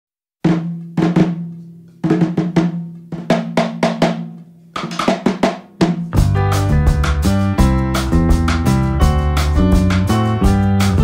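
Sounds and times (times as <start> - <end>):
snare and drum hits: 0.5 - 8.8.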